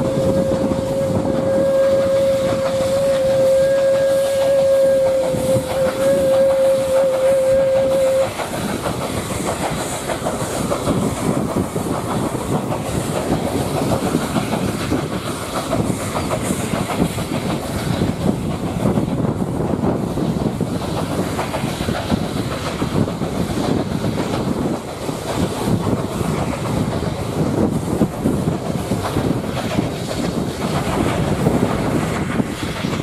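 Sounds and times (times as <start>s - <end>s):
steam locomotive whistle: 0.0s - 8.4s
train wheels clicking on rails: 0.0s - 33.0s.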